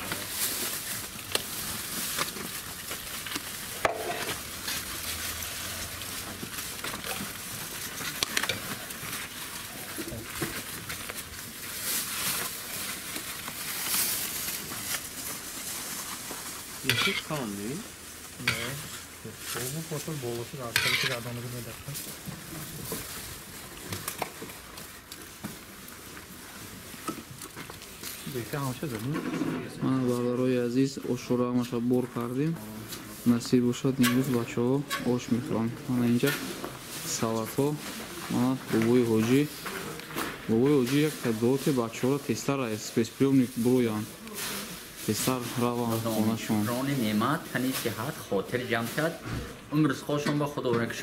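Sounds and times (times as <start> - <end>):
food sizzling in a pot: 2.1 - 10.0, 15.2 - 21.7.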